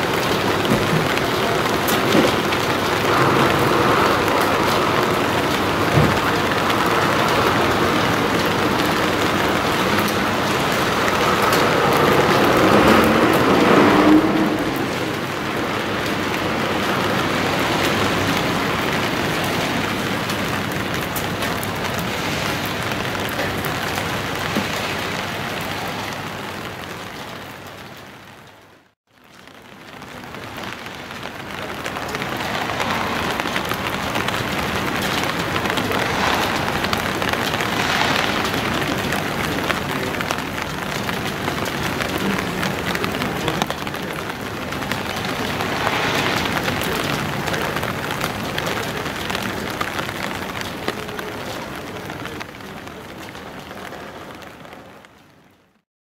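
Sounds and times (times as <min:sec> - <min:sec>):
rain on wet street: 0:00.0 - 0:55.8
vehicle engine passing: 0:02.4 - 0:18.9, 0:30.8 - 0:41.0, 0:42.1 - 0:48.6.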